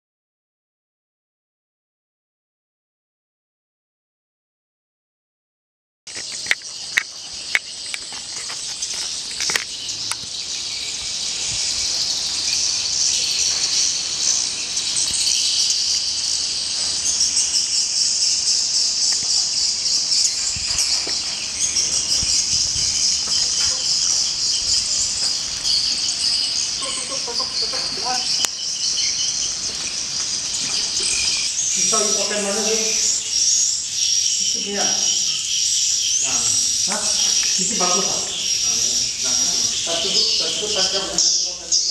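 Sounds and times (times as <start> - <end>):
sharp clicks: 6.1 - 10.2
flock of swiftlets twittering: 6.1 - 41.9.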